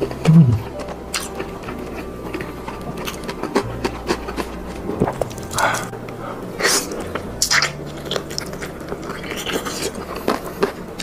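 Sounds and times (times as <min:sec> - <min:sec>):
person chewing food: 0:00.0 - 0:11.0
person humming: 0:00.2 - 0:00.8.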